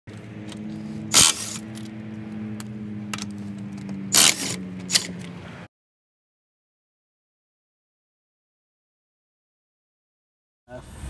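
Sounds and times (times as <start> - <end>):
cordless impact wrench running: 0.4 - 2.0, 2.6 - 5.3.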